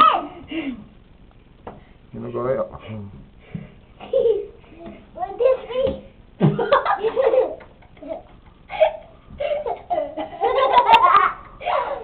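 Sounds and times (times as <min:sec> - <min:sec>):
child laughing: 0:04.0 - 0:04.6, 0:06.4 - 0:12.0.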